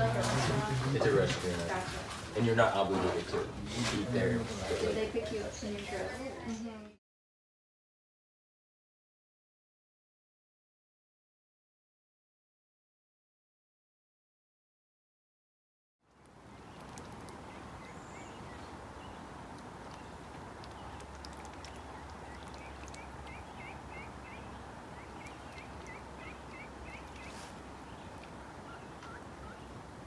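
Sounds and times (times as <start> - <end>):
soft outdoor background: 0.0 - 7.0, 16.0 - 30.0
bird chirping rapidly: 16.5 - 29.8.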